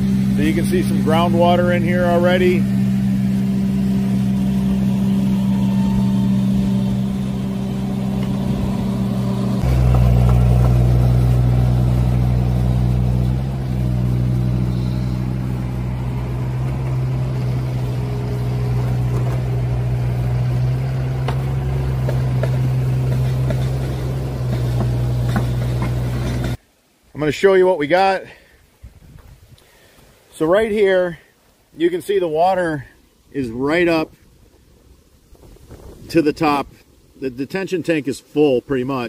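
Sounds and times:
construction machine engines running: 0.0s - 26.6s.

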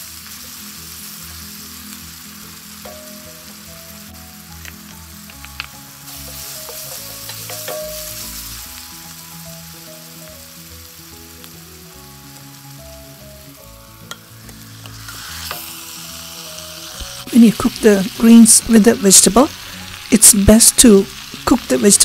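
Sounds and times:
onion sizzling in oil: 0.0s - 22.0s
quiet background music: 0.0s - 22.0s.

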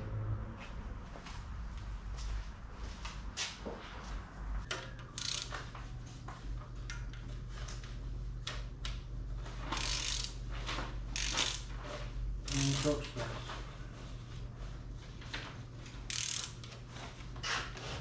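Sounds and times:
steady low hum: 0.0s - 17.4s
hand ratchet clicking: 4.8s - 5.6s, 9.8s - 10.4s, 11.2s - 11.7s, 12.5s - 13.0s, 16.1s - 16.7s.

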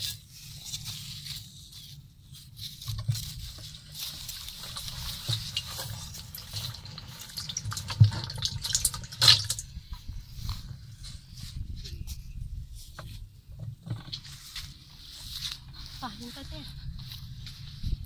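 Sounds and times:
fish thrashing in muddy water: 4.6s - 9.8s.

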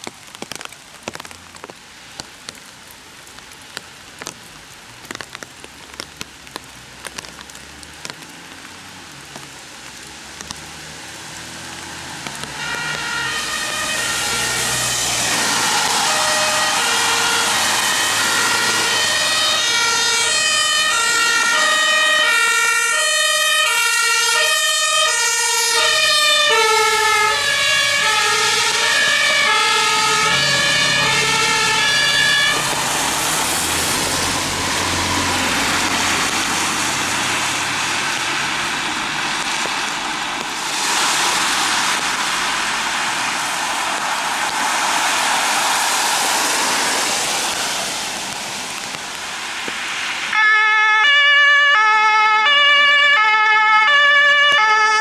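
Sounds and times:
tyres hissing on wet road: 0.0s - 53.6s
two-tone emergency siren: 12.1s - 38.6s, 50.3s - 55.0s.

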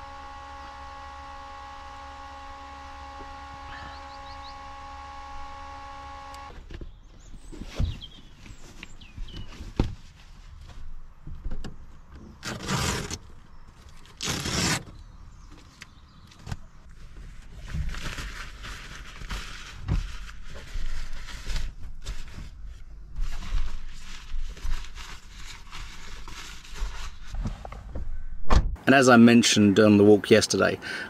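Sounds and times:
fabric rustling: 17.3s - 27.6s.

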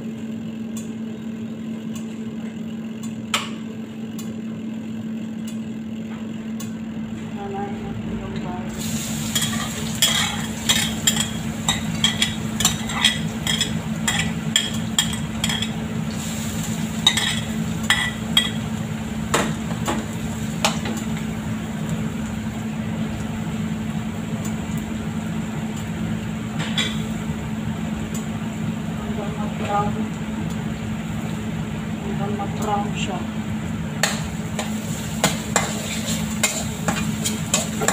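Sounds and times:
steady low hum: 0.0s - 37.9s
garlic sizzling: 8.7s - 28.7s, 33.5s - 37.9s
spoon scraping metal wok: 34.6s - 37.9s.

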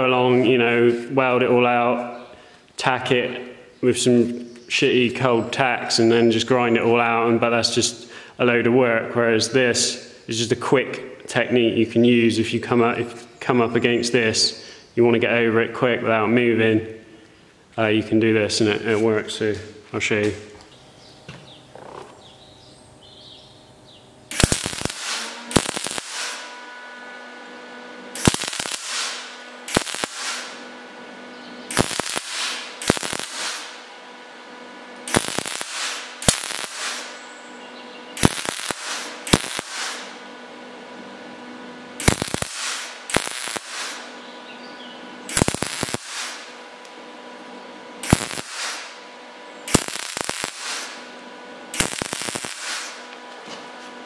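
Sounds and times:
welder steady hum: 18.2s - 54.0s
welder arc tack bursts: 24.3s - 26.7s, 28.1s - 30.8s, 31.7s - 34.0s, 35.0s - 37.5s, 38.2s - 40.4s, 42.0s - 44.3s, 45.3s - 47.0s, 48.0s - 53.3s.

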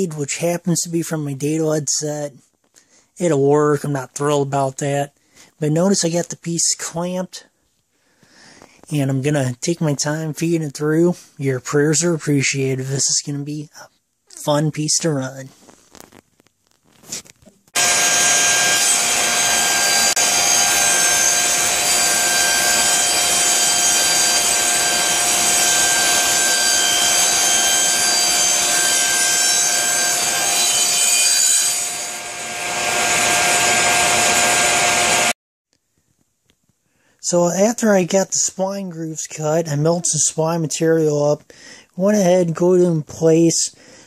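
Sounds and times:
table saw whine: 17.8s - 35.4s.

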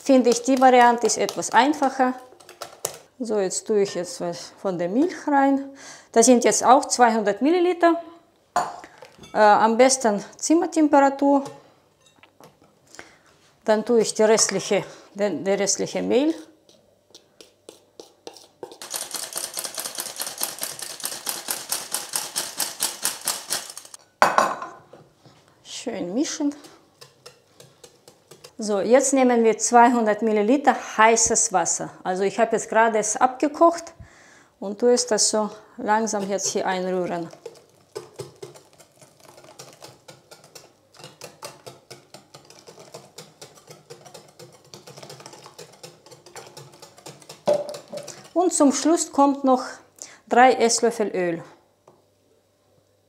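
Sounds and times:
whisk clicking against glass bowl: 26.6s - 28.6s, 36.1s - 48.4s.

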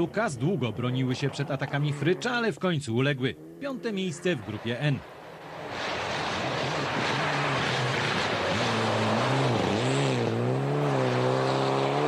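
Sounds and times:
rally car engine driving hard: 3.2s - 12.0s.

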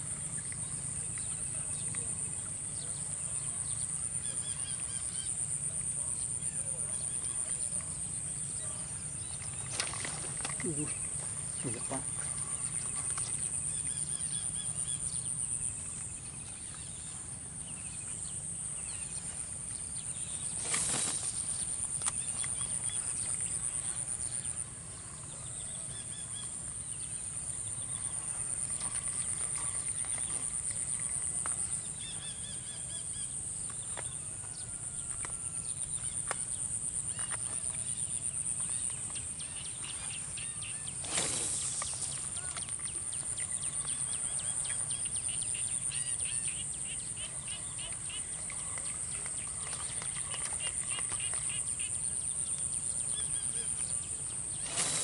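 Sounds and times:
high-pitched insect chorus: 0.0s - 55.0s
bird calls: 0.3s - 24.6s.

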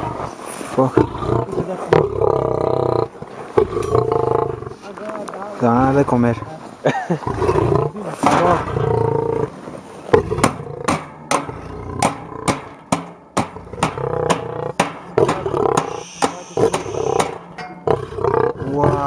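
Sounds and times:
lion growling: 0.0s - 19.0s
fast sharp knocks: 10.4s - 17.8s.

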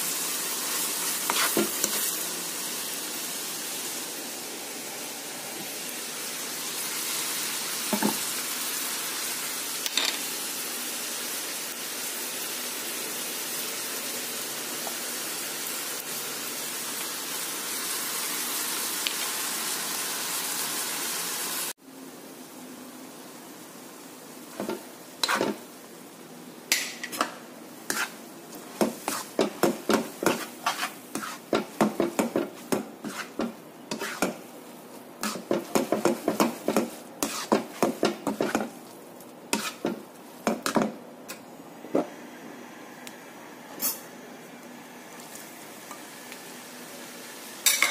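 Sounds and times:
noodles sizzling in a wok: 0.0s - 47.9s
spatula scraping pan: 1.2s - 2.1s, 24.5s - 25.6s, 26.9s - 34.4s, 35.2s - 38.8s, 39.5s - 40.9s.

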